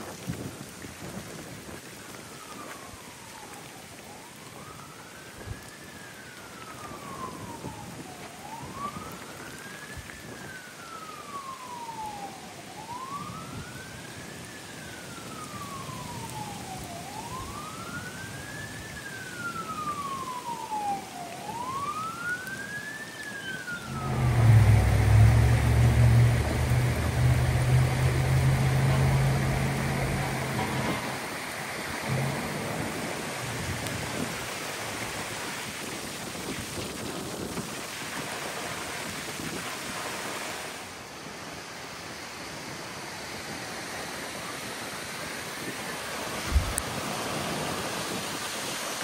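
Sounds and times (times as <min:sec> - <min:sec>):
heavy rain: 0:00.0 - 0:49.0
siren wailing: 0:02.0 - 0:36.5
loud low rushing noise: 0:23.8 - 0:35.0.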